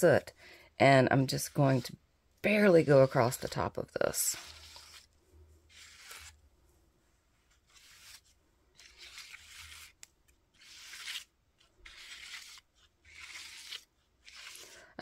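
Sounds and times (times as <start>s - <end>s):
ink pad scraping paper: 1.1s - 6.4s, 7.5s - 10.0s, 10.6s - 14.8s.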